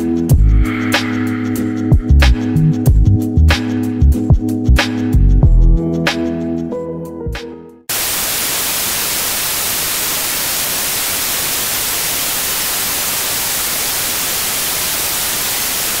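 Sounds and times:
television static hiss: 7.9s - 16.0s.

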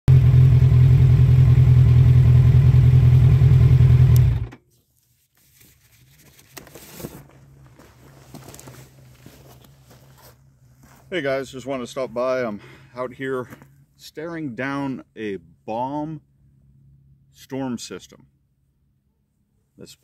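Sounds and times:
motorcycle engine idling: 0.1s - 4.5s.

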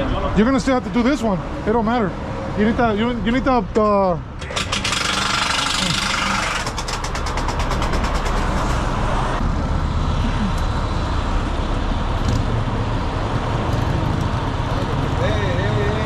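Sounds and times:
heavy truck engine running: 4.2s - 16.0s
fast mechanical rattle: 4.4s - 9.4s.

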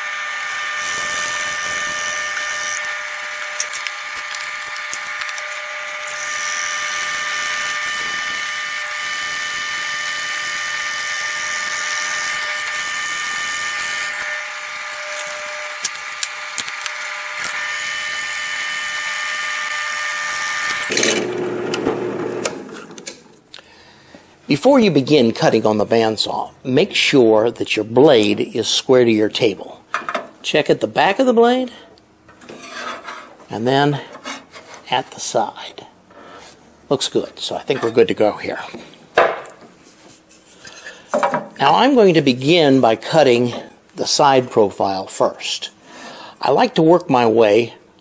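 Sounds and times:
drill bit rasping through wood: 0.0s - 22.6s
drill press motor whine: 0.0s - 23.0s.

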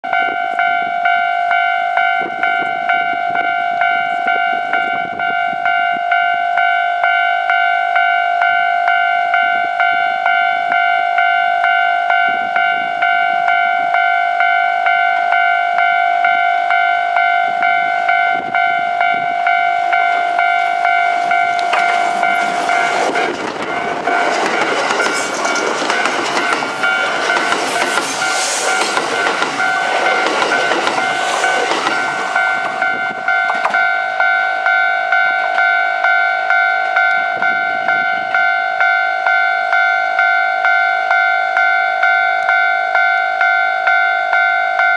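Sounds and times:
level crossing bell ringing: 0.0s - 44.9s
train passing with wheel clatter: 0.1s - 44.9s.

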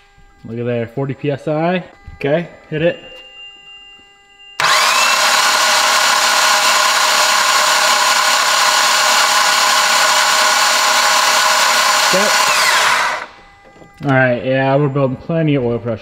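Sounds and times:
engine cranking on starter motor: 4.6s - 13.4s.

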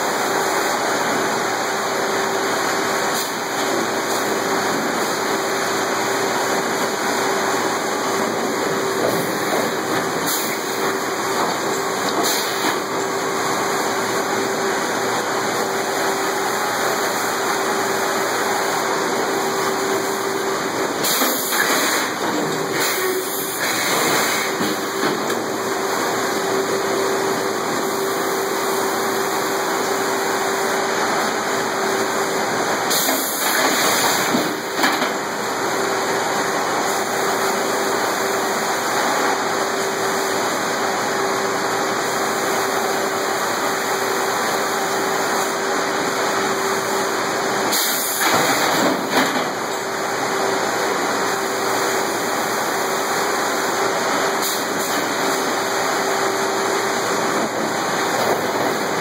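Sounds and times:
sawmill machinery humming: 0.0s - 59.0s
hissing machinery: 0.1s - 35.6s, 50.6s - 59.0s.

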